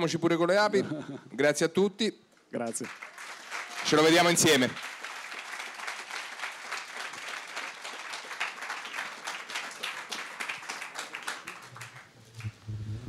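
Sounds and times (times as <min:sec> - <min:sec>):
audience applauding: 0:02.8 - 0:12.7.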